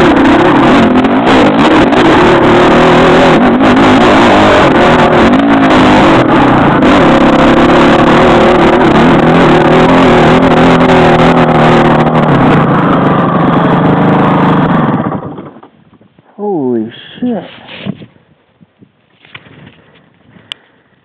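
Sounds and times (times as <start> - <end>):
dirt bike engine running: 0.0 - 16.2.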